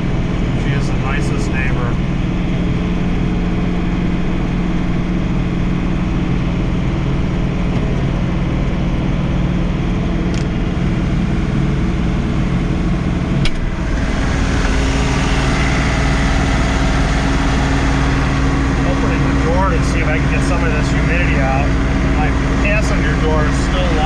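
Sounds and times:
tractor diesel engine running: 0.0s - 24.0s
snowblower rushing hiss: 13.8s - 21.1s.

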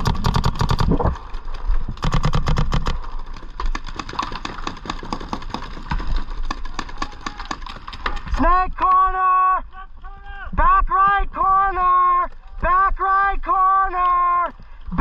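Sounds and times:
paintball markers firing: 2.0s - 8.3s.

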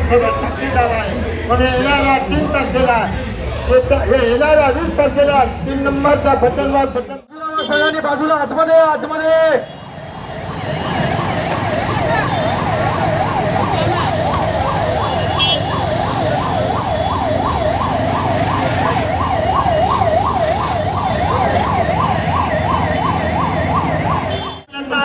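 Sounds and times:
ambulance siren yelping: 9.2s - 24.7s.

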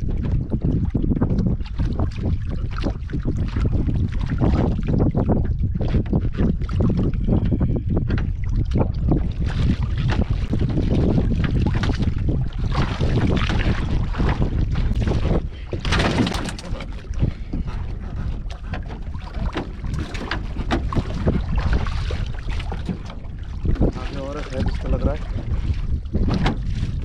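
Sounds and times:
wind buffeting microphone: 0.0s - 27.0s
water splashing: 1.5s - 27.0s
knocks in wooden boat: 8.0s - 27.0s.

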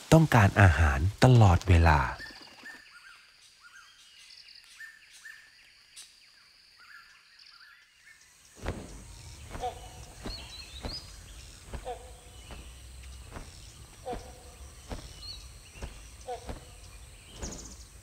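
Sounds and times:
small birds chirping: 0.0s - 18.0s
short calls: 8.6s - 18.0s.

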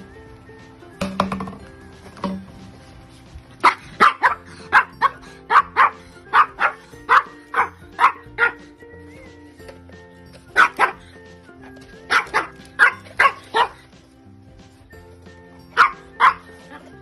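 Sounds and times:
small dog barking: 3.6s - 8.7s, 10.5s - 11.1s, 12.1s - 13.9s, 15.8s - 16.9s.

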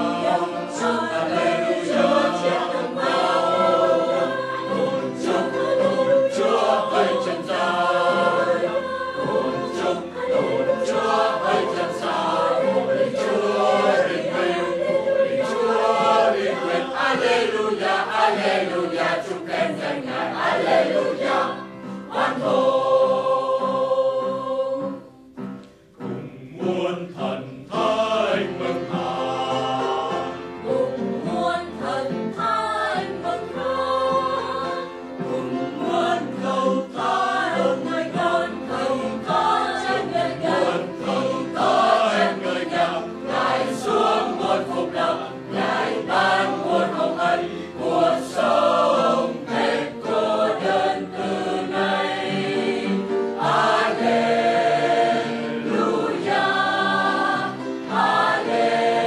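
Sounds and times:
mixed choir singing: 0.0s - 59.0s.

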